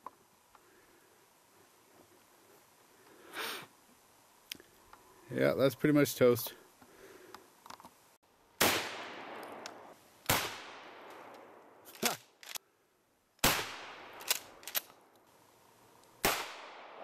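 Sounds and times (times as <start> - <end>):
quieter sharp cracks: 8.6 - 12.6, 13.4 - 15.3, 16.0 - 17.0.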